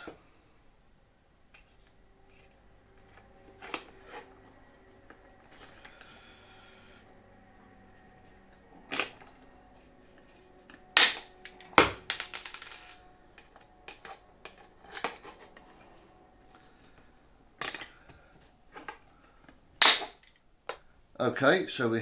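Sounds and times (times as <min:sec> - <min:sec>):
rivet gun snapping: 0:11.0 - 0:11.3.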